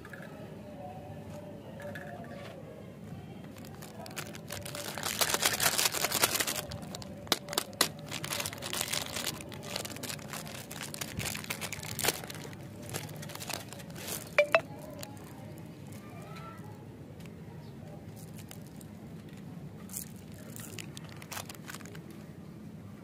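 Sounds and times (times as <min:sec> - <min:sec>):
plastic candy packet crinkling: 0:03.5 - 0:16.1, 0:18.1 - 0:22.3
packet tearing open: 0:03.6 - 0:15.0, 0:19.9 - 0:22.0.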